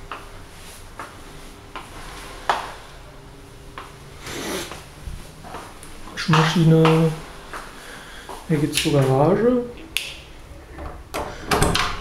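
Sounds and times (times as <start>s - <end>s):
footsteps on tiled floor: 0.0s - 2.8s, 4.6s - 9.2s
faint steady hum: 0.0s - 12.0s.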